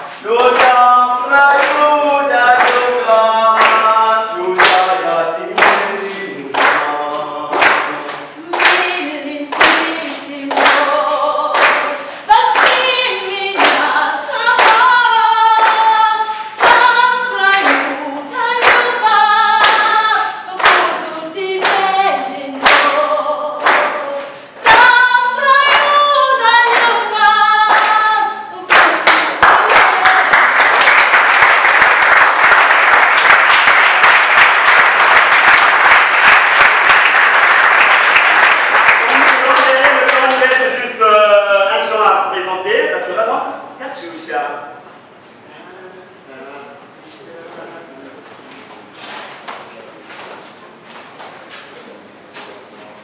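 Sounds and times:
group singing unaccompanied: 0.0 - 32.3
hand claps: 0.1 - 1.9, 2.5 - 3.9, 4.6 - 12.9, 13.6 - 14.0, 14.6 - 14.9, 15.5 - 16.0, 16.6 - 18.0, 18.6 - 21.0, 21.6 - 22.0, 22.6 - 25.0, 25.6 - 26.0, 26.6 - 28.0, 28.7 - 40.6.

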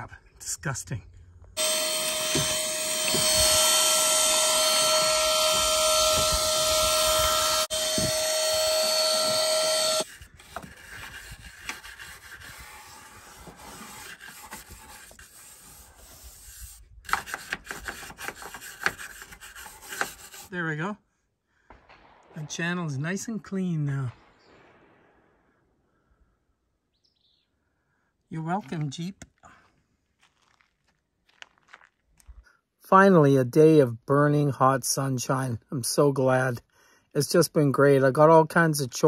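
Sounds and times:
vacuum cleaner whining: 1.6 - 10.0
plastic brush scrubbing: 10.0 - 20.5.

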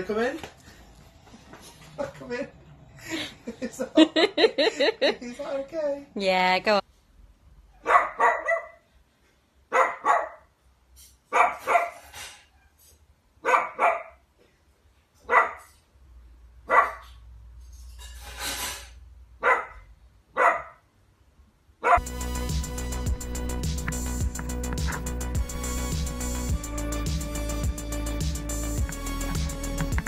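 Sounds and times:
dog barking: 7.8 - 8.8, 9.7 - 10.5, 11.3 - 12.0, 13.4 - 14.2, 15.2 - 15.7, 16.6 - 17.2, 19.4 - 20.9, 21.8 - 22.0.

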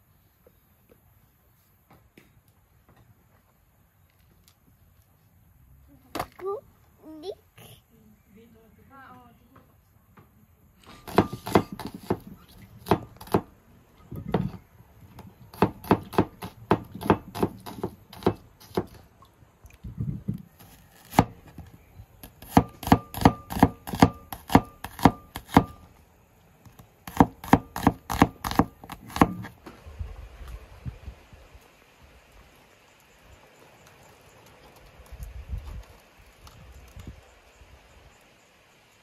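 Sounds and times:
knife chopping on wooden board: 11.0 - 13.5, 15.5 - 19.0, 21.0 - 21.4, 22.2 - 25.8, 27.1 - 29.5.

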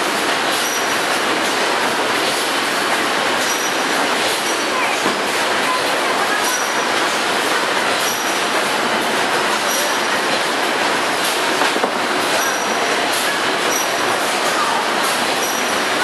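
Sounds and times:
packaging machinery din: 0.0 - 16.0.

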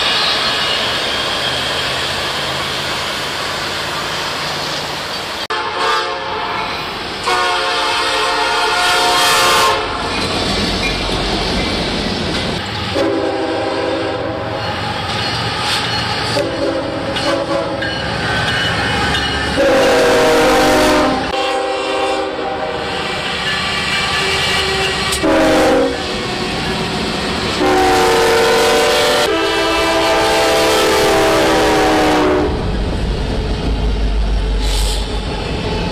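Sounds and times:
deep locomotive engine rumble: 0.0 - 35.9
train rumble and wheel clatter: 0.0 - 35.9
locomotive chime horn blasts: 5.5 - 10.0, 12.9 - 14.7, 16.3 - 18.0, 18.9 - 23.0, 24.2 - 26.3, 27.6 - 32.6.

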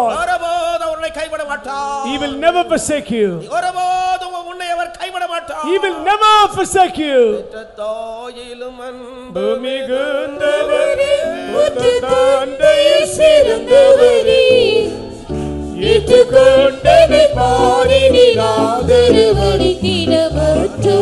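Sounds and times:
person singing devotional song: 7.8 - 21.0.

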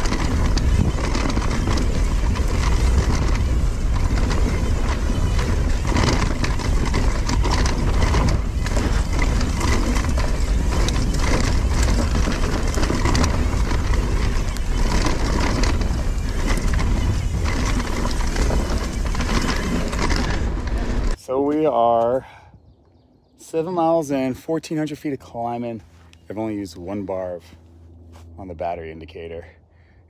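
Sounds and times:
tyres crunching through dry leaves: 0.0 - 21.2, 25.3 - 28.6
wind on microphone: 0.0 - 21.2
bike knocking and rattling: 0.0 - 22.2.

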